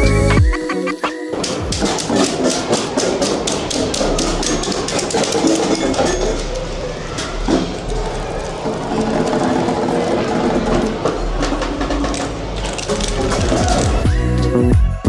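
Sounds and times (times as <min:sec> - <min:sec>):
drops tapping cups and metal: 0:01.3 - 0:07.8.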